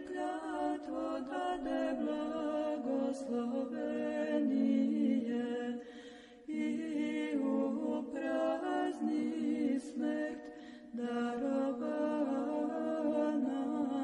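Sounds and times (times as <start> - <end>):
voices chanting a cappella: 0.0 - 14.0.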